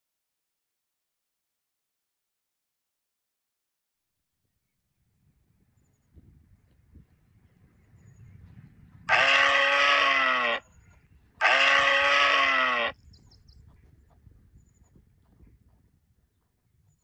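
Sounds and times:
deer bleat call: 0:09.1 - 0:10.7, 0:11.4 - 0:13.0.

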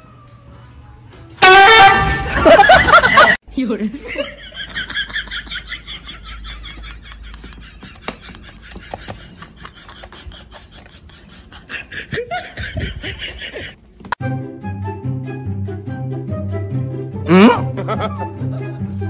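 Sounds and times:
laughter: 0:02.1 - 0:03.4, 0:04.0 - 0:13.8, 0:17.7 - 0:19.0.

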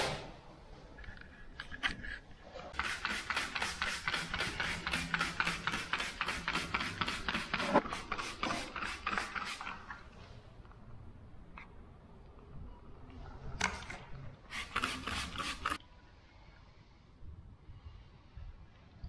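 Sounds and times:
spray bottle squirting: 0:02.8 - 0:10.0, 0:14.5 - 0:15.8.

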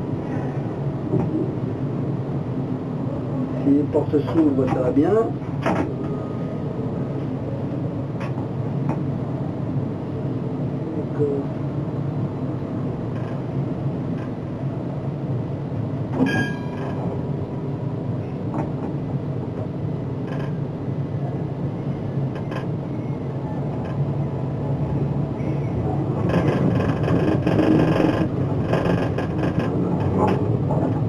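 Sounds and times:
tram electric drive hum: 0:00.0 - 0:31.0
high ringing tone: 0:16.2 - 0:16.9.

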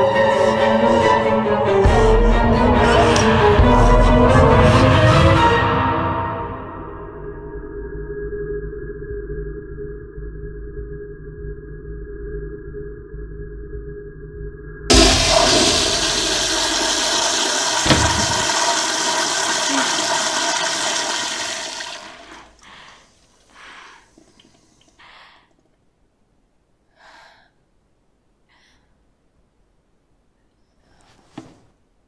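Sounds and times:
toilet flushing: 0:14.9 - 0:23.4
short knock: 0:17.8 - 0:18.5.

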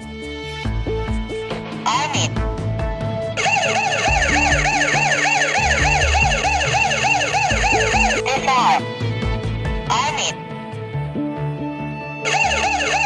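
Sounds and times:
background music: 0:00.0 - 0:13.0
warbling alarm siren: 0:03.4 - 0:08.8, 0:12.2 - 0:13.0.

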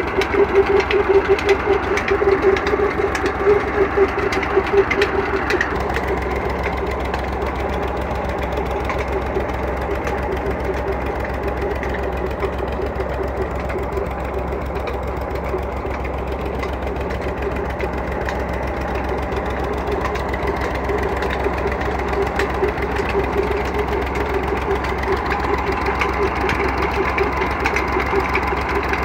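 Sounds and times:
tractor engine running under load: 0:00.0 - 0:29.0.

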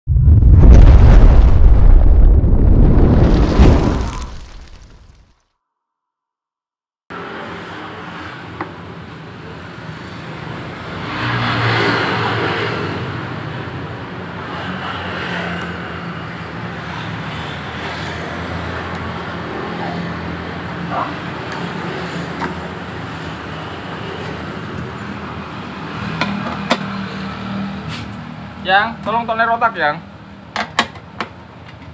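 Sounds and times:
traffic noise: 0:07.1 - 0:31.9.

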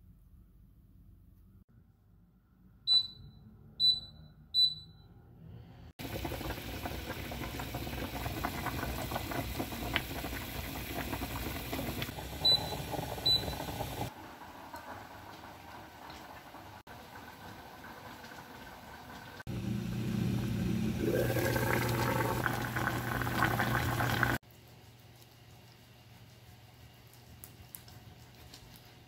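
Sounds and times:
cooktop touch control beeps: 0:02.9 - 0:05.2, 0:12.4 - 0:13.8.

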